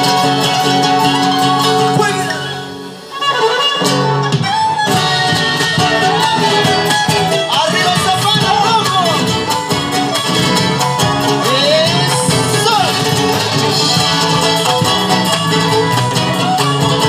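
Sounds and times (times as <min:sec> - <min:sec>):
plucked strings: 0:00.0 - 0:17.0.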